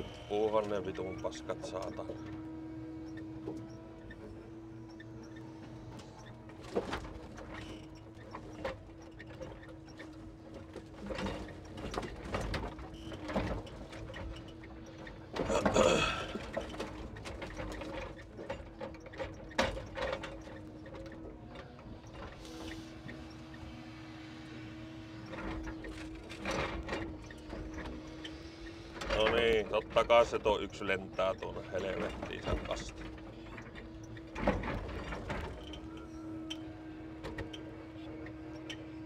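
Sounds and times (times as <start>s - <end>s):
hydraulic hum: 11.5s - 39.0s.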